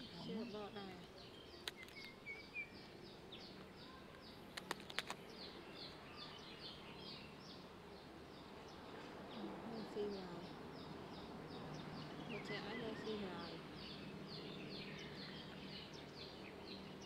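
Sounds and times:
sharp clicks: 1.6s - 2.2s, 4.5s - 5.3s.

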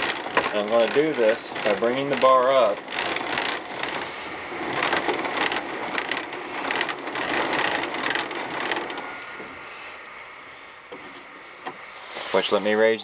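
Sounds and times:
mechanical clicking and grinding: 0.0s - 10.1s.

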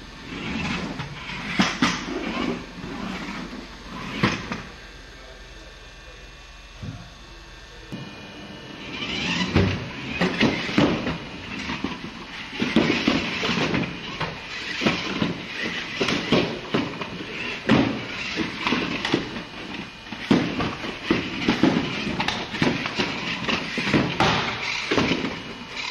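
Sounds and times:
small electric motor whirring: 0.1s - 5.1s, 7.1s - 25.9s
toy car knocks and scrapes: 9.0s - 19.5s, 20.1s - 25.9s.

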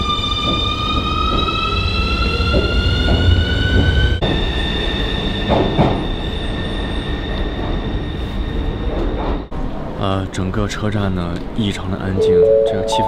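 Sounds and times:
train running gear rumble: 0.0s - 4.5s, 5.2s - 6.3s.

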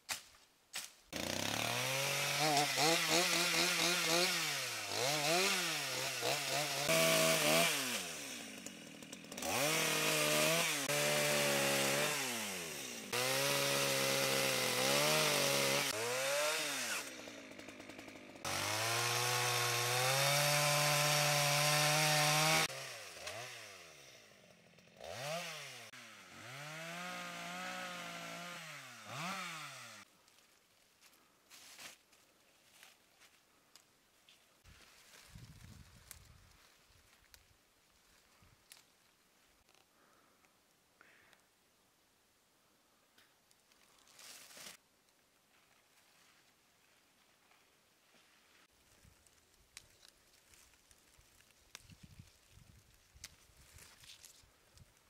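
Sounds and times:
chainsaw cutting branches: 0.8s - 30.1s.

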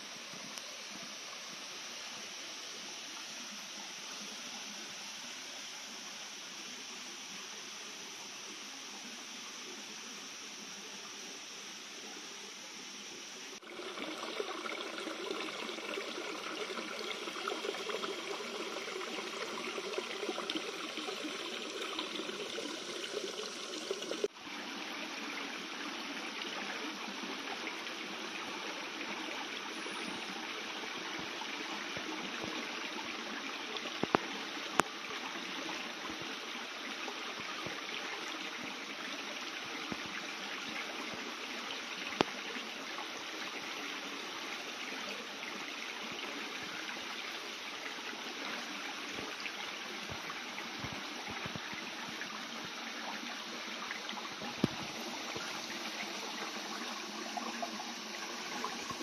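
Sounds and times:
water rushing over stones: 13.6s - 24.4s, 48.7s - 59.0s.

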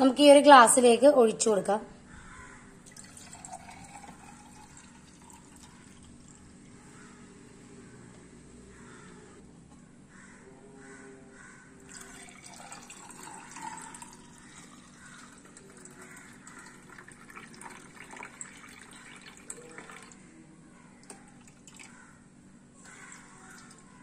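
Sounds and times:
juice pouring into a glass: 2.8s - 6.6s, 11.9s - 20.2s, 21.3s - 22.0s.

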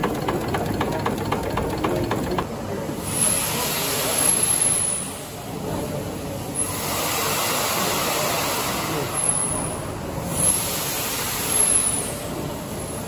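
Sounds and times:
steam engine running: 0.0s - 3.1s.

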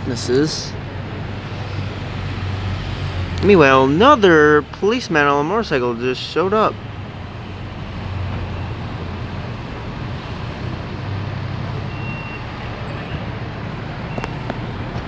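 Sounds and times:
street traffic hum: 0.0s - 15.0s
vehicle engines idling: 0.0s - 15.0s
short high beep: 11.9s - 12.5s.

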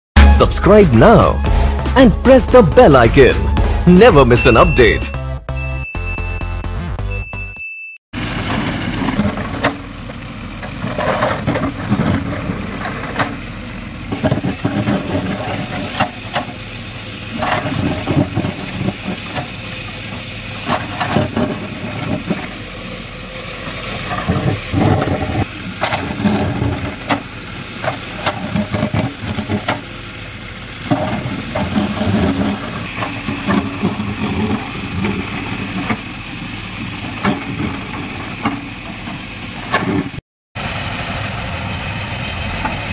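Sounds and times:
diesel engines running: 0.2s - 7.4s, 8.2s - 42.9s
metal clanks and knocks: 10.6s - 13.5s, 14.1s - 16.6s, 20.6s - 22.6s, 24.0s - 30.0s, 30.8s - 36.1s, 37.0s - 40.2s
bucket scraping through soil: 20.6s - 22.8s, 30.9s - 36.0s.

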